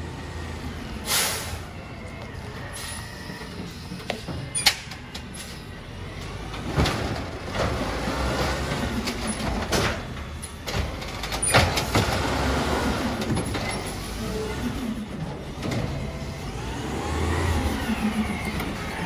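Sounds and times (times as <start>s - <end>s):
garbage truck engine revving: 5.3s - 19.0s.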